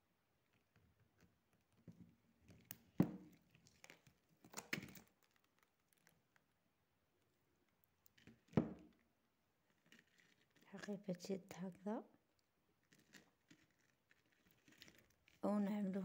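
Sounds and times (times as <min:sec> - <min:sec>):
handbag crinkling on plastic: 0:09.8 - 0:11.0, 0:12.8 - 0:16.0.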